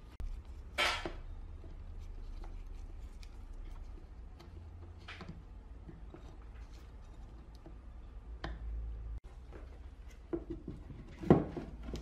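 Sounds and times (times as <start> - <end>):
light clicks and handling knocks: 0.1 - 12.0.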